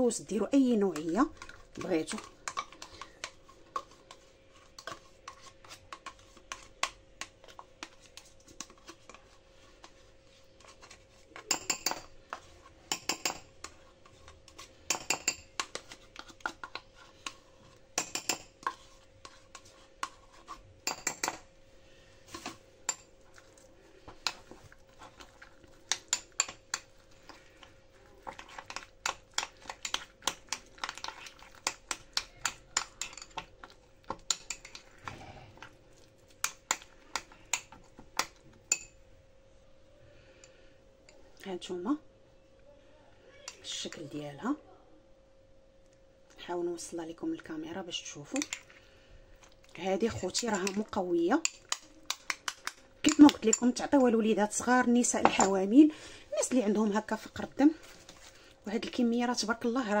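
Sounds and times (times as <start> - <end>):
metal spoon clinking on ceramic bowl: 11.4 - 12.1, 12.9 - 13.5, 14.9 - 15.7, 18.0 - 18.5, 20.8 - 21.4.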